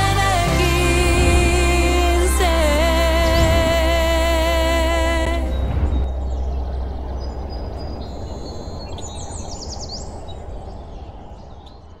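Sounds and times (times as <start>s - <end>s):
outdoor background noise: 3.2s - 12.0s
birds chirping: 4.8s - 12.0s.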